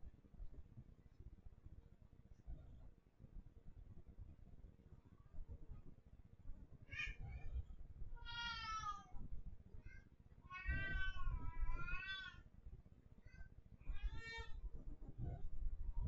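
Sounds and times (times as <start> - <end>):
kittens mewing: 10.5 - 12.4.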